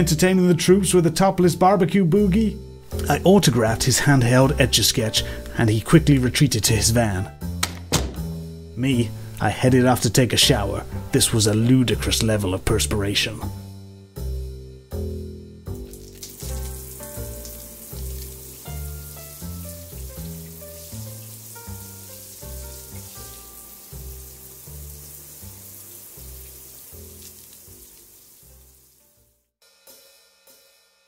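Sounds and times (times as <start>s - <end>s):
background music with bass line: 0.0s - 27.2s
shower spraying water: 15.8s - 29.3s.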